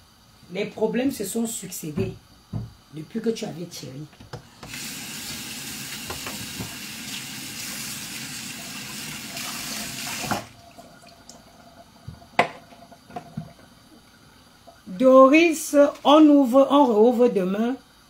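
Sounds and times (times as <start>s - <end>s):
kitchen tap running: 4.3s - 15.0s.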